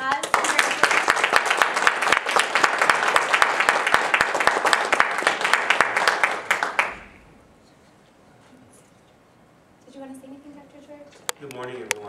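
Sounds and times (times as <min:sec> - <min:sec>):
people applauding: 0:00.0 - 0:07.2.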